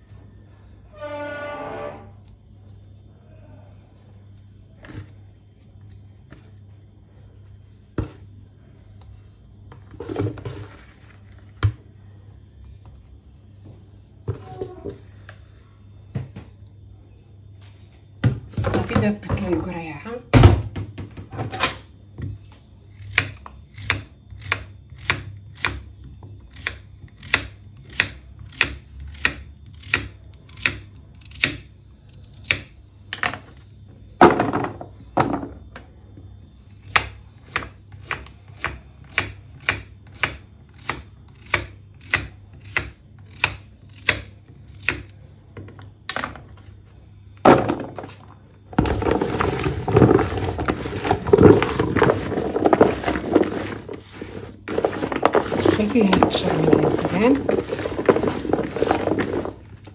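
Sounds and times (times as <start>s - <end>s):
slices clattering into plastic bowl: 48.8s - 59.6s.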